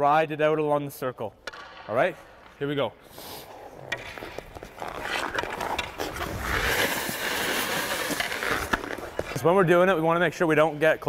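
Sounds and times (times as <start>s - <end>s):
skate blade hissing on ice: 3.1s - 3.7s, 5.0s - 9.2s.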